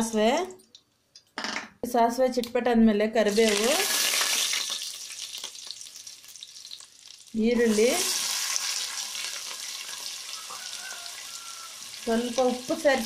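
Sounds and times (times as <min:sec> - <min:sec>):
seeds crackling in hot oil: 0:03.2 - 0:13.0
onions sizzling in oil: 0:03.3 - 0:13.0.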